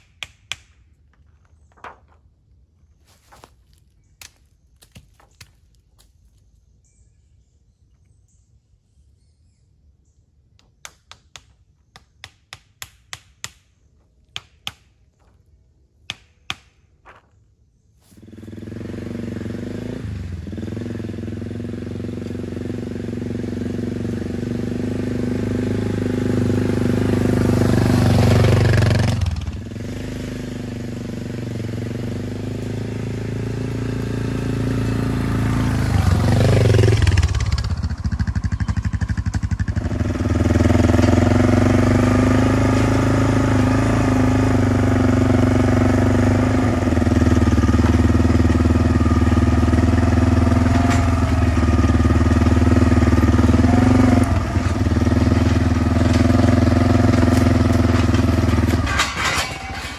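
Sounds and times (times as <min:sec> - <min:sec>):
atv engine running: 0:18.1 - 0:59.9.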